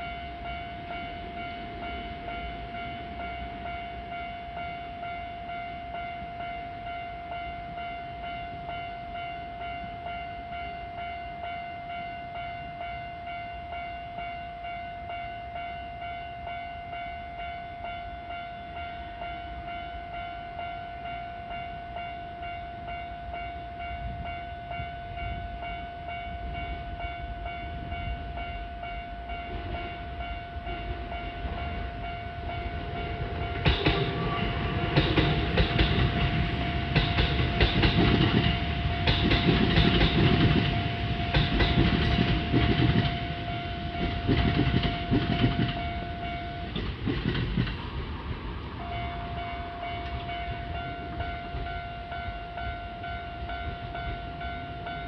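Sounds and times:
level crossing warning bell: 0:00.0 - 0:55.0
train wheels clattering: 0:32.5 - 0:48.1.

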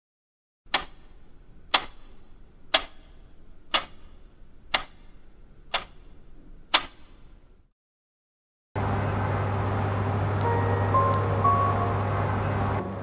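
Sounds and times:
clock ticking: 0:00.7 - 0:06.1, 0:06.7 - 0:07.1.

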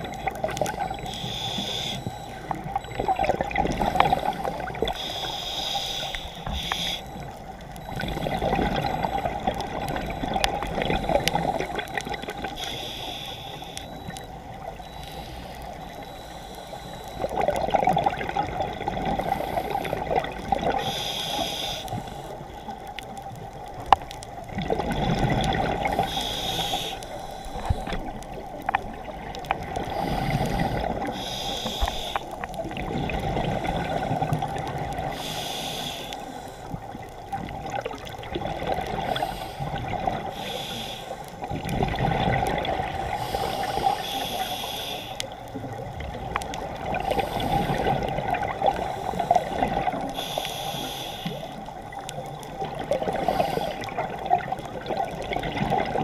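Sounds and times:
diver inhaling through regulator hiss: 0:01.0 - 0:02.5, 0:03.8 - 0:07.3, 0:12.6 - 0:14.1, 0:14.9 - 0:17.2, 0:19.2 - 0:22.4, 0:25.8 - 0:28.1, 0:29.8 - 0:32.5, 0:35.1 - 0:36.9, 0:39.0 - 0:41.5, 0:43.0 - 0:45.6, 0:46.9 - 0:48.1, 0:48.7 - 0:51.8, 0:53.0 - 0:54.2
gurgling rush of bubbles: 0:02.7 - 0:05.0, 0:07.8 - 0:12.5, 0:17.3 - 0:20.8, 0:24.4 - 0:26.1, 0:32.5 - 0:35.2, 0:37.2 - 0:40.3, 0:41.4 - 0:44.0, 0:45.6 - 0:50.2, 0:51.8 - 0:56.0.

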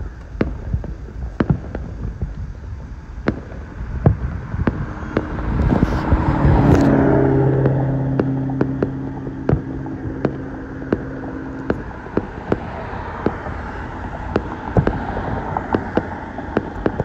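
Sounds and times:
distant fireworks bangs: 0:00.0 - 0:17.0
low rumble: 0:00.0 - 0:17.0
car passing by: 0:04.8 - 0:17.0.

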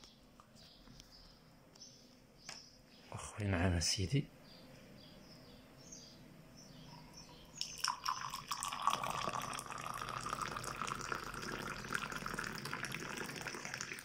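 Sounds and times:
tea pouring into a glass: 0:07.5 - 0:14.0.

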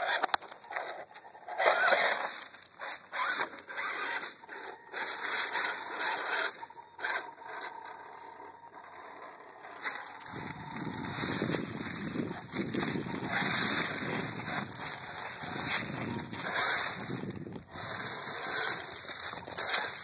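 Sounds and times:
toy car motor whine: 0:00.0 - 0:20.0
tyres scraping on rock: 0:00.0 - 0:20.0
dry leaves crackling: 0:02.0 - 0:07.6, 0:09.7 - 0:20.0.

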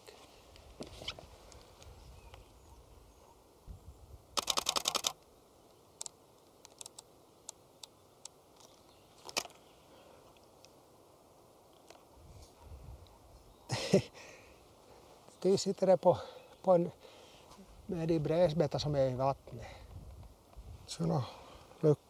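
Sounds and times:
camera shutter burst: 0:04.3 - 0:05.2
single shutter clicks: 0:04.4 - 0:05.2.

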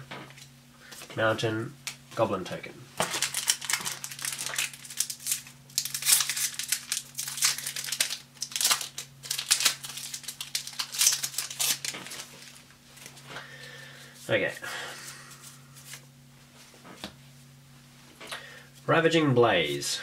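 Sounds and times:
foil wrapper crinkling: 0:03.0 - 0:13.2.

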